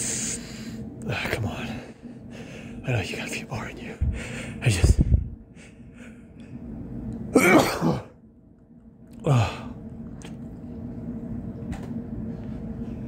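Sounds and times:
faint steady hum: 0.0 - 13.0
man sneezing: 7.4 - 8.2.

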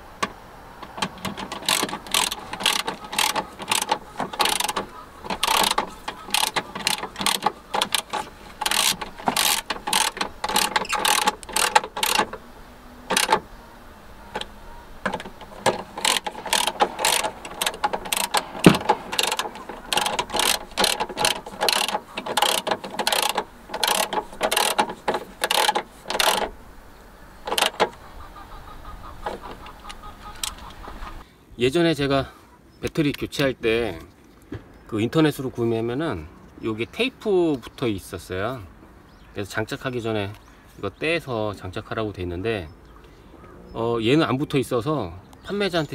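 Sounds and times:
socket ratchet clicking: 0.2 - 12.4, 13.1 - 13.5, 14.3 - 26.6, 27.4 - 28.0.

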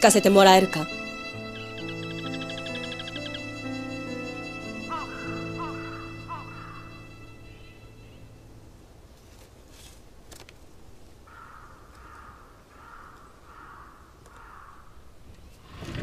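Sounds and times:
crow cawing: 4.6 - 7.6, 11.3 - 15.0
paper rustling: 9.1 - 10.7.

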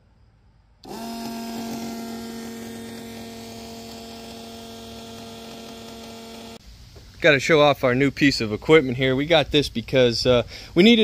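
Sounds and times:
electric pump humming: 0.8 - 7.0.

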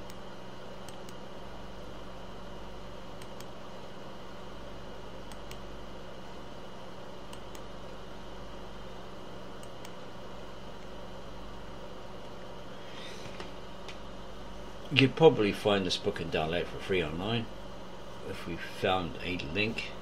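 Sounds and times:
fan-like room noise: 0.0 - 20.0
low electrical hum: 0.0 - 20.0
computer mouse clicks: 0.8 - 1.2, 3.2 - 3.5, 5.3 - 5.6, 7.3 - 7.7, 9.6 - 10.0.

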